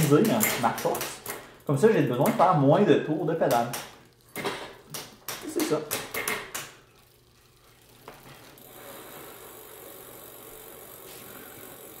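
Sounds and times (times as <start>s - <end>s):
knocks on bicycle crank: 3.4s - 6.8s
bicycle chain whirring: 6.1s - 12.0s.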